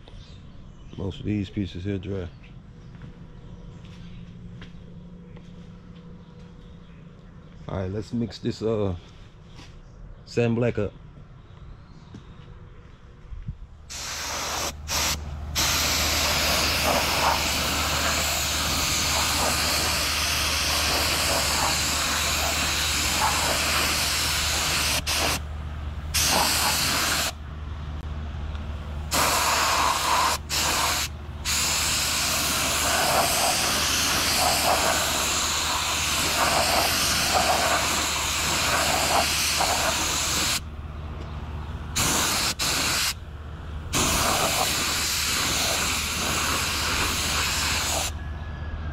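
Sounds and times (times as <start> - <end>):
low hum: 11.0 - 36.6
paint spray gun hissing: 13.9 - 25.4, 26.2 - 27.4, 29.1 - 40.6, 42.0 - 43.2, 44.0 - 48.2.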